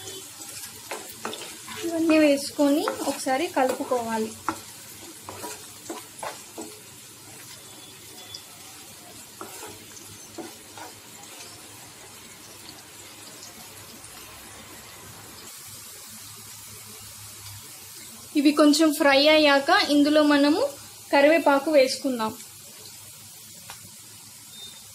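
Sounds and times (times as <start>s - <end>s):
wooden spatula scraping a pan: 0.0s - 8.2s, 8.8s - 11.7s
onions sizzling in hot oil: 0.0s - 24.9s.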